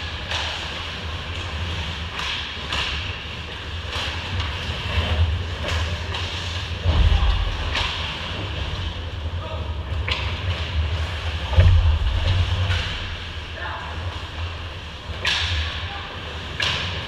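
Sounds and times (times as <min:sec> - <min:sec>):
hockey sticks and puck clacking: 0:00.0 - 0:09.0, 0:09.9 - 0:17.0
steady low rumble: 0:04.8 - 0:16.6
heavy thump: 0:06.8 - 0:07.9, 0:11.5 - 0:13.3.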